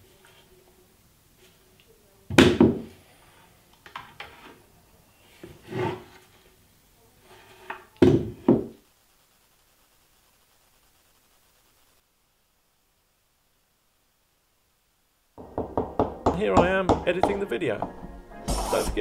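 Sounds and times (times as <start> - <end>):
wood rubbing: 15.4 - 19.0.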